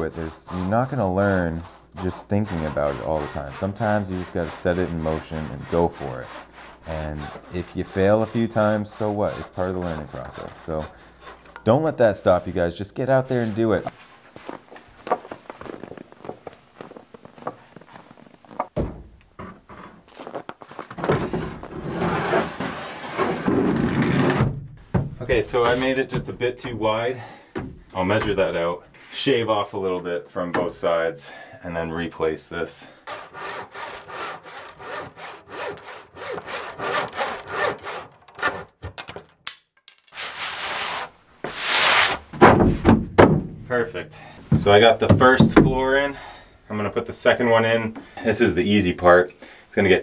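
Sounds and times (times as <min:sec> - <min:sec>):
plywood sheet scraping and dragging: 0:00.0 - 0:18.1, 0:19.6 - 0:24.5, 0:25.2 - 0:26.2, 0:40.2 - 0:43.0
footsteps crunching in snow: 0:13.9 - 0:18.7, 0:20.1 - 0:20.9.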